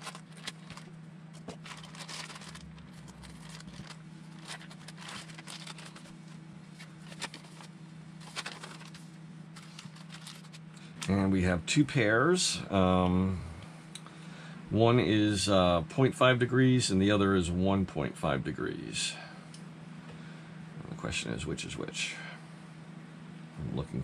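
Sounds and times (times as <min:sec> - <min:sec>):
plastic packaging crinkling: 0:00.0 - 0:11.1
steady low hum: 0:00.0 - 0:24.0.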